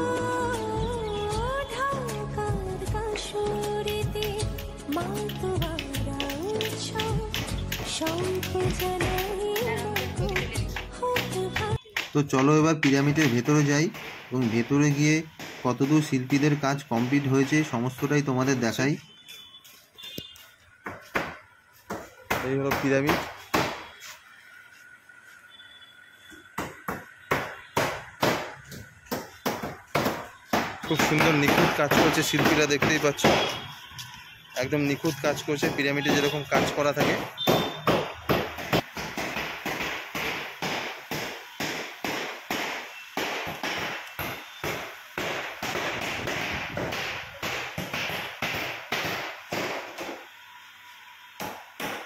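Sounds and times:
hammers tapping on bricks: 3.9 - 17.7, 26.6 - 33.6, 35.6 - 50.2
hammer blows: 35.0 - 50.3.

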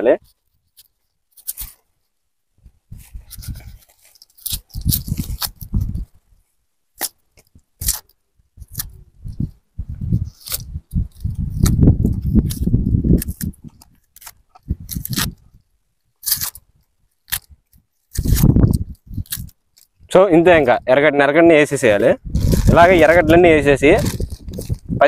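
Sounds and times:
knife peeling onion skin: 0.7 - 1.8, 3.2 - 6.2, 7.0 - 15.6, 16.2 - 20.0, 22.2 - 24.9.

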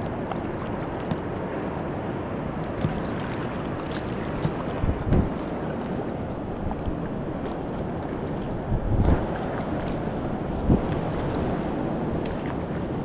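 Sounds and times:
paddle strokes splashing: 0.0 - 13.0
paddle knocks: 3.9 - 5.4.

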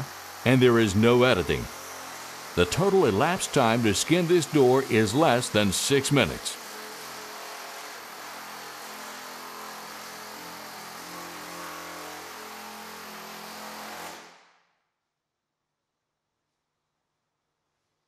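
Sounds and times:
pneumatic air hammer running: 1.3 - 5.6.

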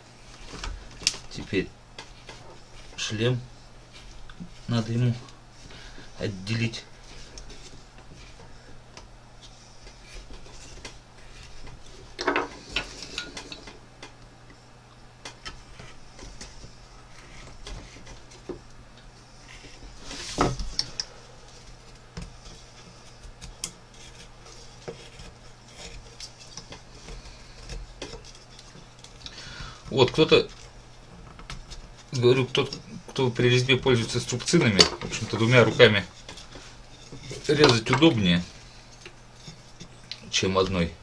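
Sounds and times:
knife carving wood: 19.4 - 40.2.

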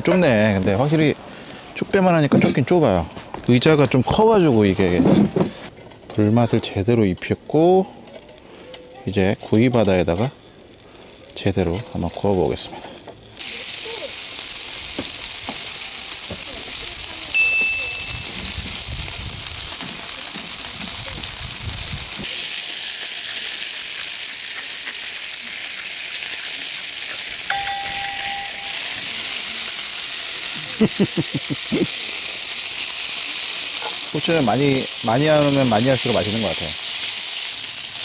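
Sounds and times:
pork sizzling on a grill: 0.0 - 38.0
short metallic dings: 17.4 - 18.3, 27.5 - 29.0.

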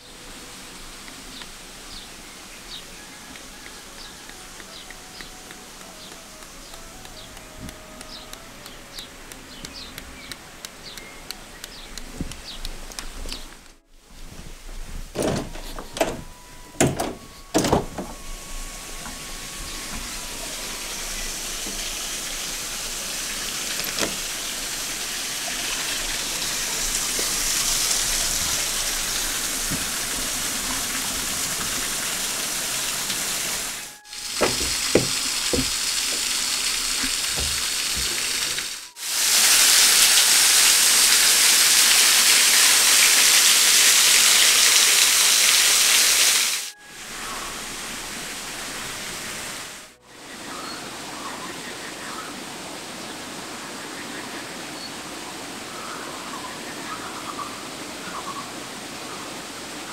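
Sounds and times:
waterfall rushing: 0.0 - 13.7, 15.6 - 59.9
knocks: 34.3 - 36.4, 37.0 - 38.4.

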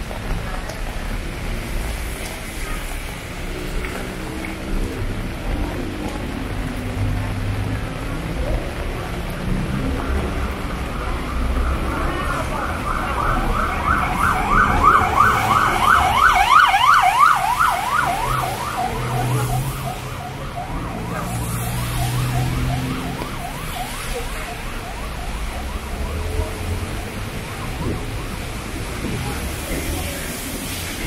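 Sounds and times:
low traffic hum: 0.0 - 31.0
emergency siren yelping: 9.5 - 30.8.

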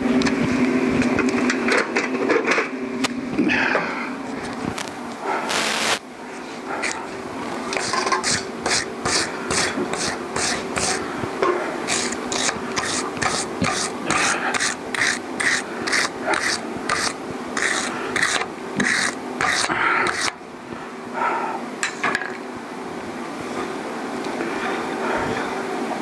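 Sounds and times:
faint steady hum: 2.8 - 26.0
hand tool scraping metal: 7.8 - 11.0, 11.9 - 20.4.

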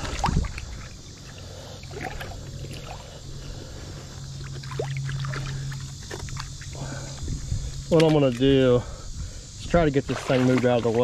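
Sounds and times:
river water sloshing and splashing: 0.0 - 3.2, 4.3 - 6.8, 9.9 - 11.0
low steady hum: 0.0 - 11.0.

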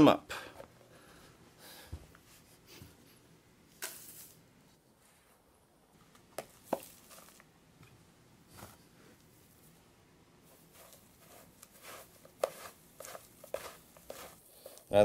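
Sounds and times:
soil rustling in plastic container: 6.6 - 7.5, 10.4 - 15.0.

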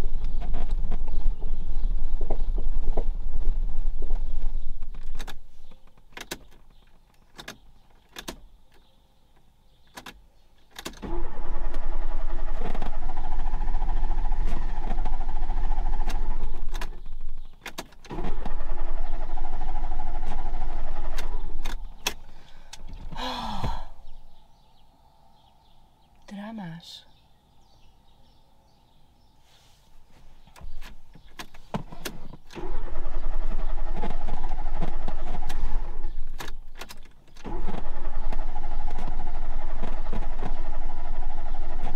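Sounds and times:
starter cranking engine: 10.8 - 23.9, 31.5 - 41.9
sharp clicks: 21.1 - 23.2.

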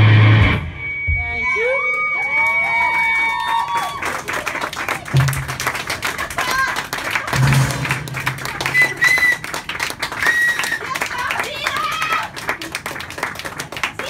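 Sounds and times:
audience clapping and cheering: 1.6 - 14.0
short high whistles: 8.6 - 9.6, 10.2 - 10.8.

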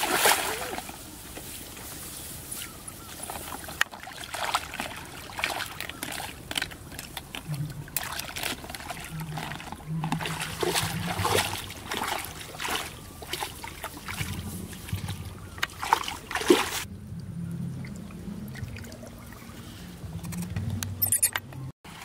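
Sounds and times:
feet splashing through shallow water: 0.0 - 16.9.

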